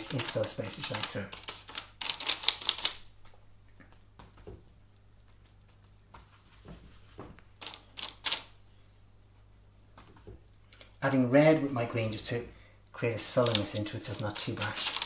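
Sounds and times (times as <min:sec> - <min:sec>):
brush scratching on paper: 0:06.2 - 0:08.3, 0:13.5 - 0:15.0.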